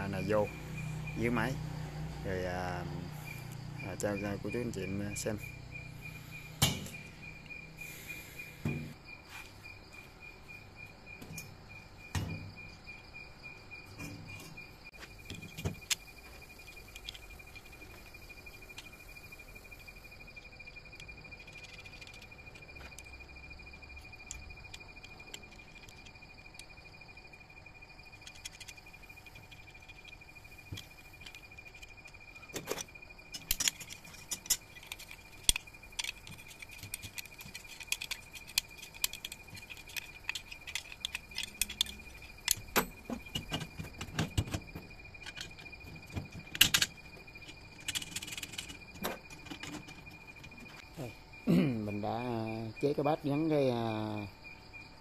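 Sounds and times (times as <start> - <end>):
metal clinking and knocking: 6.5 - 7.4, 28.0 - 50.8.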